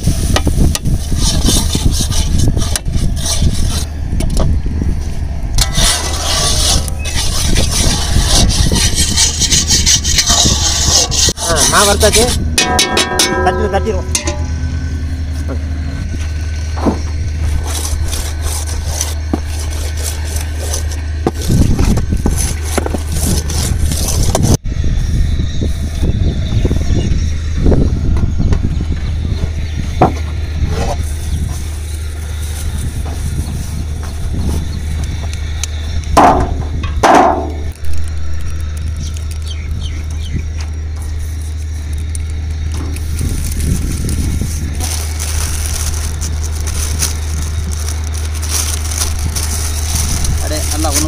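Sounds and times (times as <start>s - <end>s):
low rumble: 0.0s - 51.0s
steady low hum: 0.0s - 51.0s
ladle scraping a pan: 5.6s - 14.4s.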